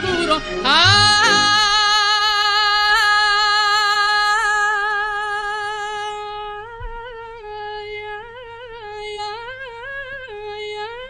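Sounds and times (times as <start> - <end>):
person singing long high note: 0.0 - 6.3.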